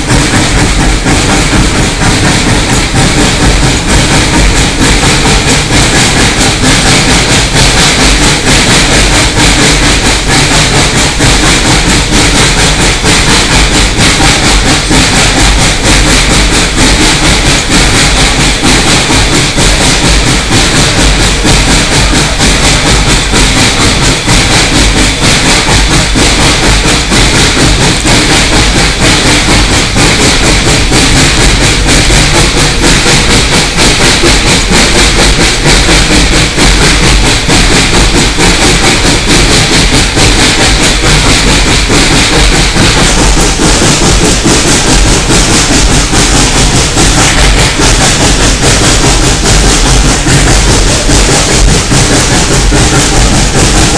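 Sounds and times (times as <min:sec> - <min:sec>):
running gear and wheels clattering: 0:00.0 - 0:53.9
steam hissing: 0:00.0 - 0:53.9.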